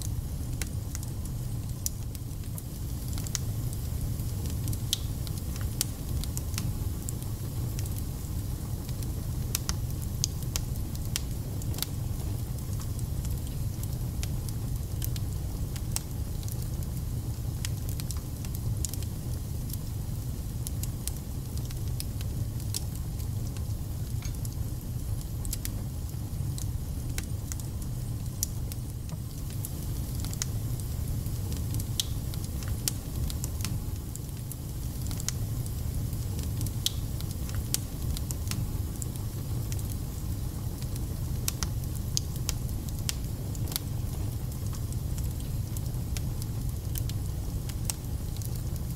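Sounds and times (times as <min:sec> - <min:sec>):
wood fire crackling: 0:00.0 - 0:48.9.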